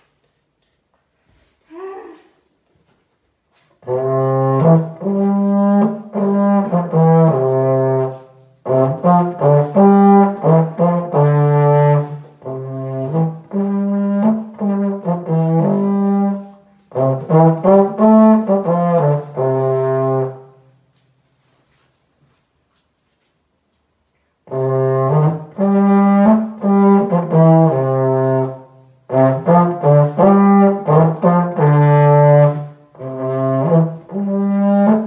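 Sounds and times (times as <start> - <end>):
solo euphonium melody: 3.8 - 20.8, 24.4 - 35.0.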